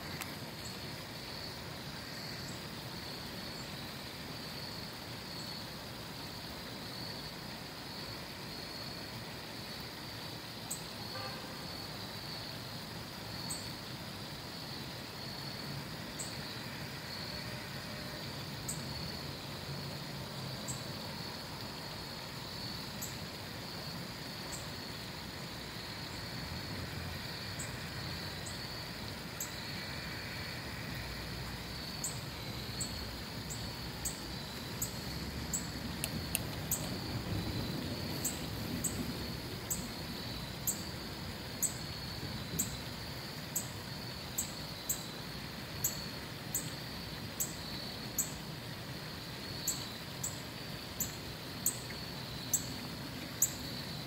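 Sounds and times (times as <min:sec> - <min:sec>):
even hiss: 0:00.0 - 0:54.0
faint high ticks: 0:00.1 - 0:00.4, 0:34.5 - 0:37.0
distant road traffic rumble: 0:23.0 - 0:43.6.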